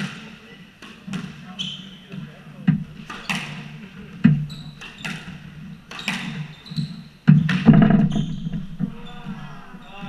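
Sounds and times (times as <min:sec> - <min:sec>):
sneakers squeaking: 0:01.1 - 0:10.0
squash ball hits echoing: 0:07.3 - 0:10.0.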